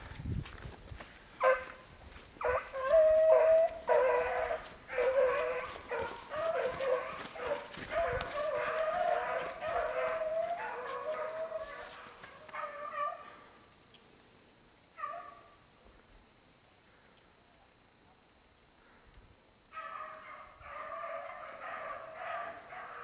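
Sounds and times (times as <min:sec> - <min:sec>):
hounds baying: 0:01.4 - 0:13.6, 0:15.0 - 0:15.6, 0:19.7 - 0:23.0.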